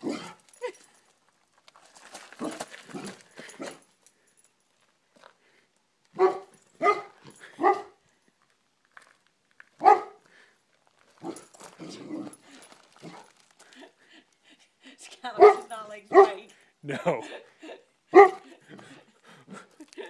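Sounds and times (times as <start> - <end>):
dog barking: 6.2 - 8.0, 9.8 - 10.2, 15.4 - 16.4, 18.1 - 18.5.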